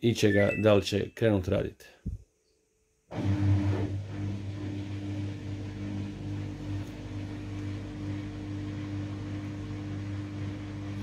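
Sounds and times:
washing machine drain pump humming: 3.1 - 11.0.

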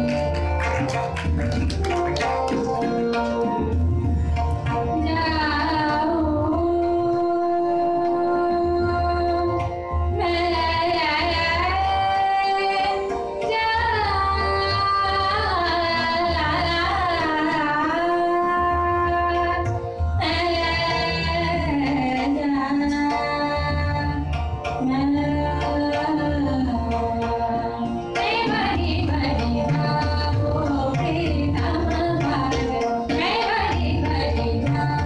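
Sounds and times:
tabla accompaniment: 0.0 - 35.0
woman singing classical vocal: 5.0 - 9.6, 10.2 - 35.0.

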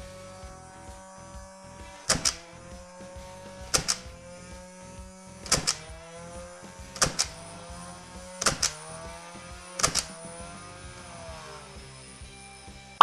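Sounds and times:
foam dart blaster shots: 2.1 - 2.5, 3.7 - 4.2, 5.4 - 6.0, 7.0 - 7.5, 8.4 - 8.9.

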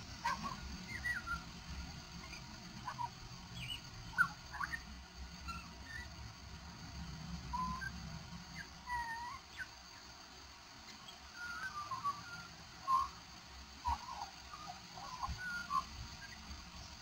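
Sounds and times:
magpie singing: 0.2 - 1.5, 2.2 - 6.1, 7.5 - 7.9, 8.5 - 9.8, 10.9 - 13.2, 13.8 - 16.4.

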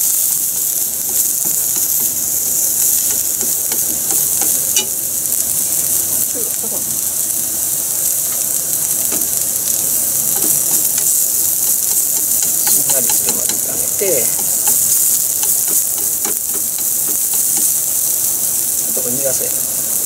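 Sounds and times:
vegetables sizzling in a pan: 0.0 - 20.0
chopsticks tapping and scraping pan: 0.3 - 5.0, 9.0 - 18.9.

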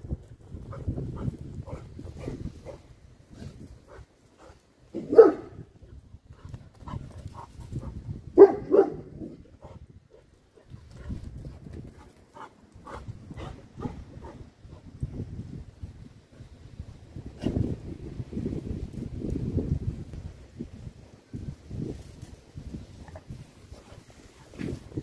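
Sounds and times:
wind rumbling on microphone: 0.0 - 25.0
large dog barking: 4.9 - 5.6, 8.3 - 9.4.

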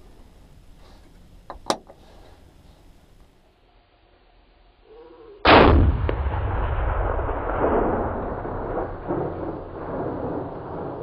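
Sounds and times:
rifle shot: 5.5 - 11.0
rolling echo: 5.5 - 11.0.

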